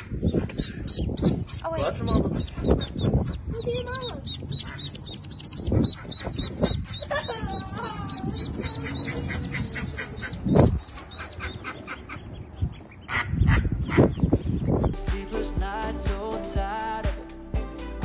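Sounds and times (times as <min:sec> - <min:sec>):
hen duck calling: 0:00.0 - 0:14.2
ducklings peeping: 0:00.0 - 0:15.0.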